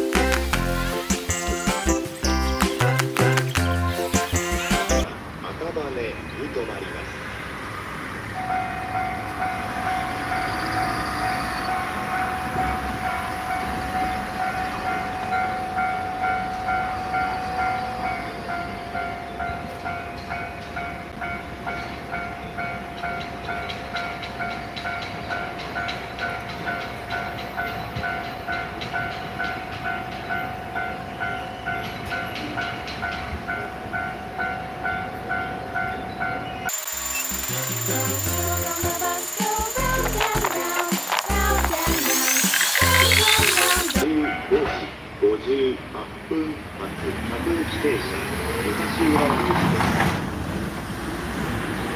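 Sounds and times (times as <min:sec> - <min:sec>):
level crossing bell clanging: 0:31.8 - 0:42.4
held electronic tone: 0:36.7 - 0:44.0.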